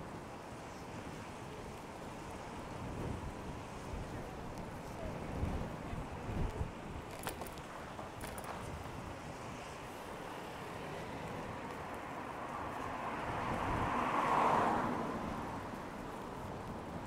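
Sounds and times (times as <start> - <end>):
car tyres hissing on wet road: 9.3 - 17.0.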